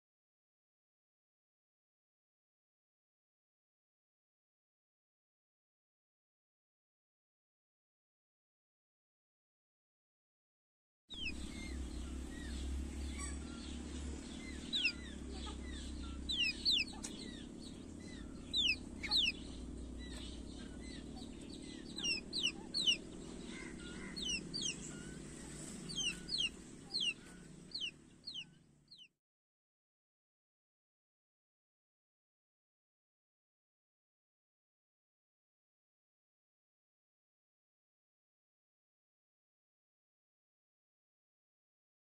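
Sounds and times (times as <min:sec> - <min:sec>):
low hum: 0:11.2 - 0:29.0
chicks peeping: 0:11.2 - 0:29.1.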